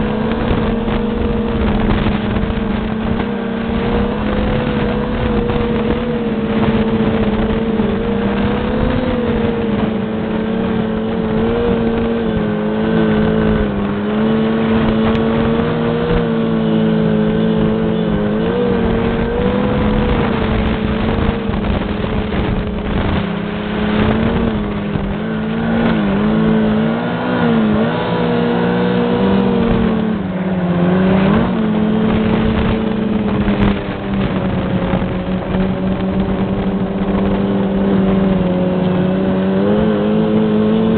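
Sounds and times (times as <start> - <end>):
snowmobile engine running: 0.0 - 40.9.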